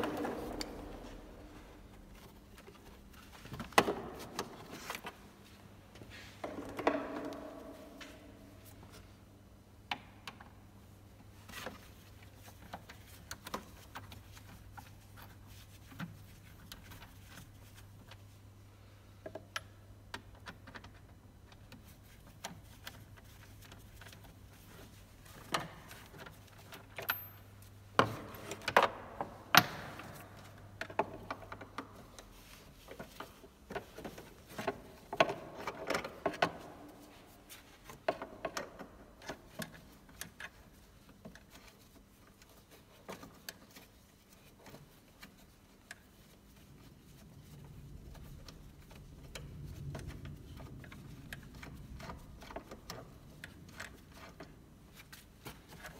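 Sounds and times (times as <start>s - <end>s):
clicks and rattles of parts: 19.2s - 55.9s.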